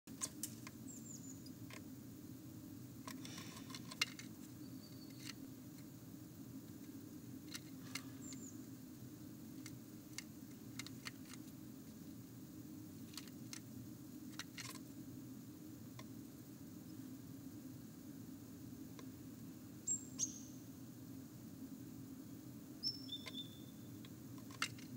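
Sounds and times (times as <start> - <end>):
steady low hum: 0.1 - 24.9
bird claws scratching wood: 3.1 - 5.4
short high bird chirps: 19.8 - 20.5, 22.8 - 23.8.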